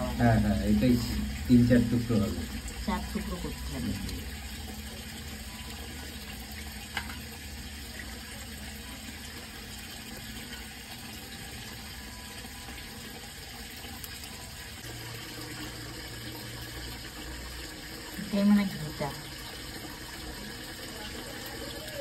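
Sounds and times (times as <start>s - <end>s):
crab pieces rinsed by hand: 0.0s - 15.2s
water running from a tap: 0.0s - 22.0s.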